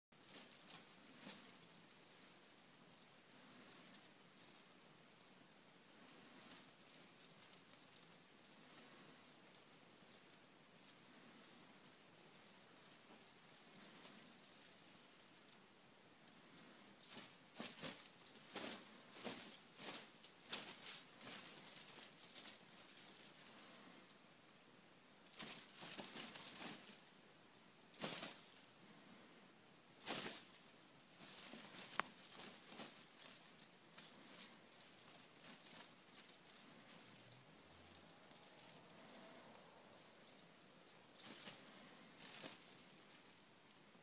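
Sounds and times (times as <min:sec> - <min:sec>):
fabric blanket rustling: 0:16.4 - 0:24.1, 0:30.0 - 0:43.4.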